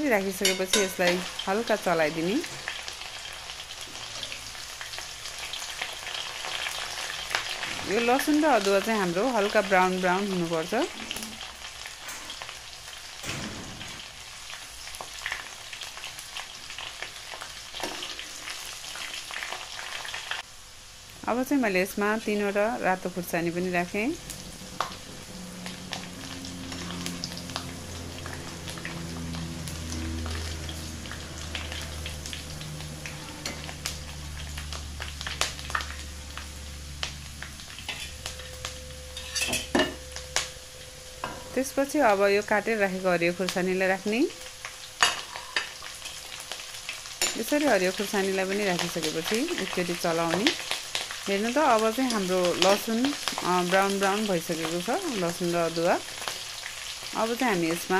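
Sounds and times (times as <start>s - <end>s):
garlic and ginger sizzling in oil: 0.0s - 57.9s
metal ladle scraping pan: 0.4s - 1.4s, 39.1s - 40.0s.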